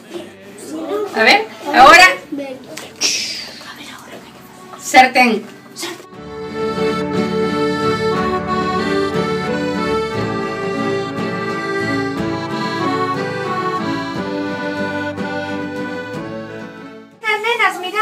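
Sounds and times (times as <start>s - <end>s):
instrumental background music: 3.8s - 17.4s.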